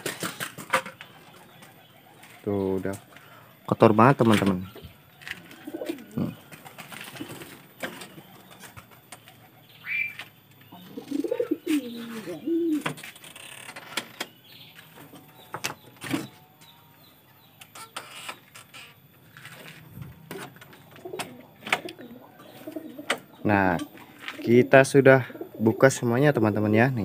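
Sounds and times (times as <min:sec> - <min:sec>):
pigeons cooing: 0:00.0 - 0:03.6, 0:04.6 - 0:13.3, 0:19.6 - 0:27.0.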